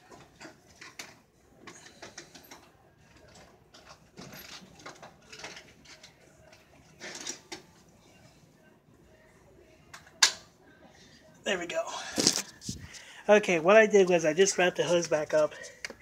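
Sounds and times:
vacuum hose rustling and scraping: 12.0 - 13.2.

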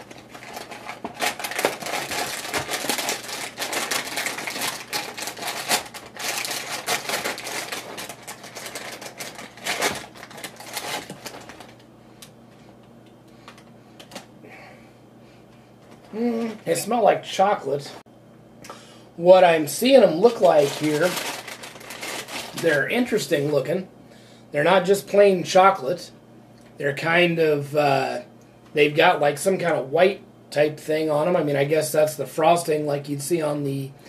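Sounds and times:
packaging rustling: 0.0 - 12.8, 19.8 - 23.2.

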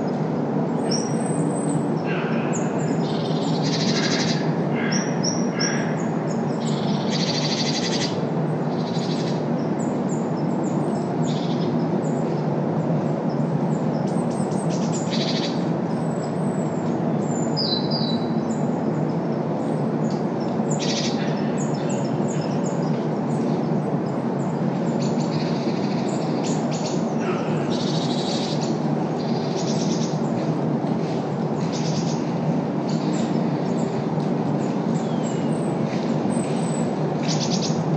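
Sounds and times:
birds chirping and calling: 0.0 - 37.9
road traffic rumble: 0.0 - 37.9.

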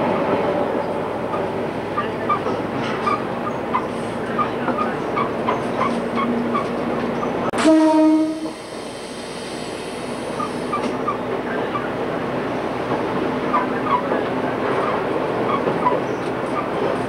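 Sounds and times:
train running: 0.0 - 17.0
rail-joint clicks: 0.2 - 7.7, 8.4 - 17.0
train horn blast: 7.6 - 8.6.

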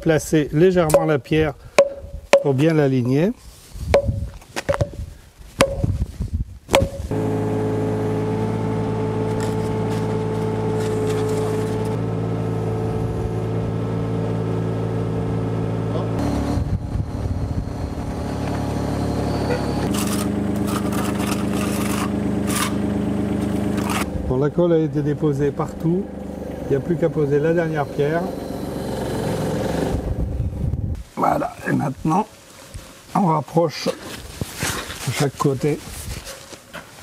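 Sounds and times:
rubber mallet on stone: 1.8 - 2.6, 3.9 - 5.0, 5.6 - 6.0, 6.7 - 7.1
mini excavator diesel engine: 7.1 - 30.6.

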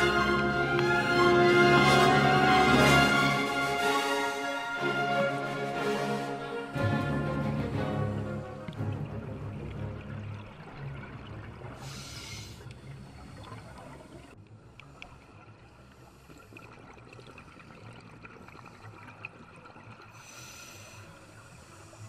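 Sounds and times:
exhaled bubbles underwater: 6.6 - 20.2.

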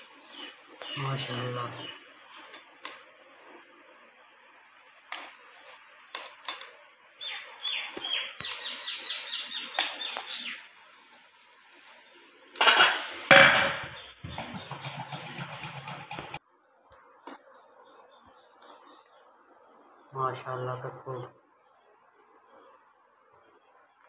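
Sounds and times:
metal spatula scraping pot: 12.6 - 16.4
utensil clatter: 12.6 - 16.4.

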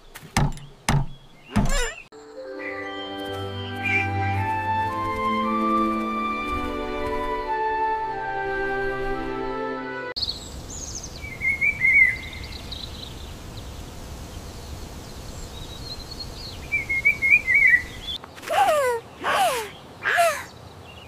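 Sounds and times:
birds chirping and warbling: 0.0 - 7.7, 10.2 - 21.0
outdoor background hiss: 10.2 - 21.0.

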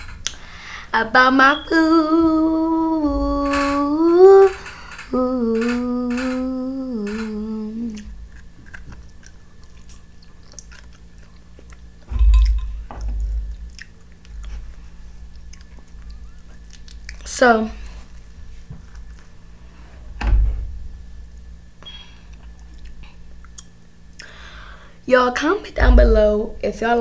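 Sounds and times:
girl humming: 1.7 - 8.2
dull low thump: 2.9 - 3.8, 12.1 - 13.8, 20.2 - 21.1, 25.8 - 26.5
chewing and mouth sounds: 8.0 - 17.4, 18.0 - 19.3, 22.3 - 24.4.

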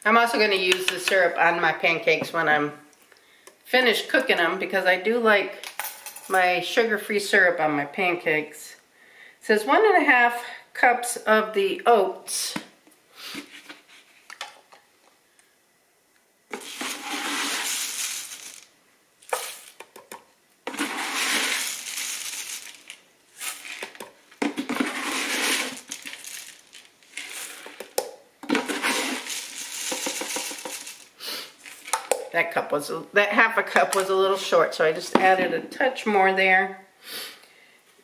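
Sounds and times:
oats poured into blender jar: 16.5 - 18.7, 20.7 - 32.1.

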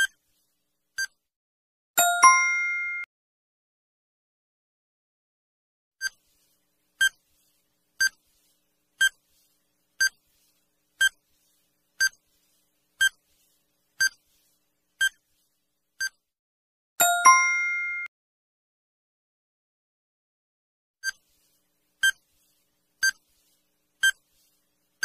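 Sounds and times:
ringing chime: 2.0 - 3.1, 17.0 - 18.1.

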